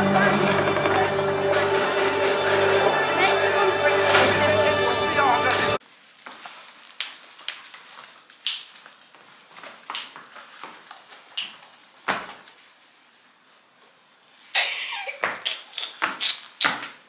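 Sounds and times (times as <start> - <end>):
clothing rustling: 5.8 - 14.5
footsteps on hardwood floor: 6.2 - 12.6.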